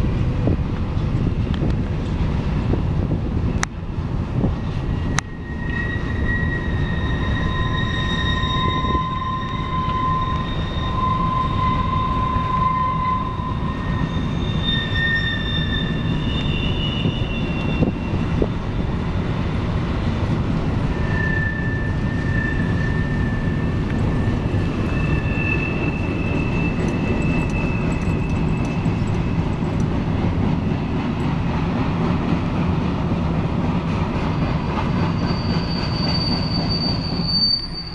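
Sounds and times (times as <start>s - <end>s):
freight train wheels rumbling: 0.0s - 37.9s
high-pitched wheel squeal: 4.5s - 29.9s, 34.3s - 37.9s.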